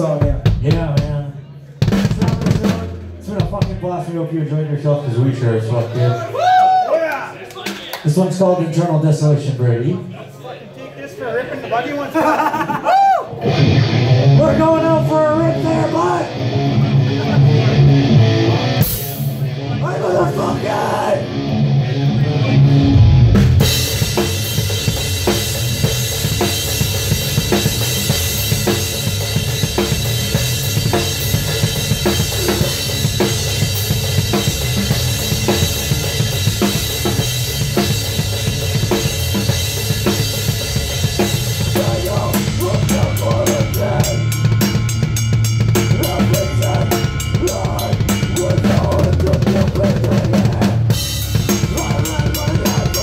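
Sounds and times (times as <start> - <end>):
metal band playing: 0.0 - 4.5, 13.3 - 53.0
cymbals: 23.0 - 49.2.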